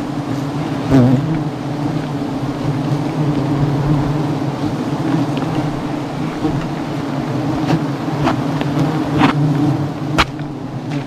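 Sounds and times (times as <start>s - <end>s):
bee swarm humming: 0.0s - 11.0s.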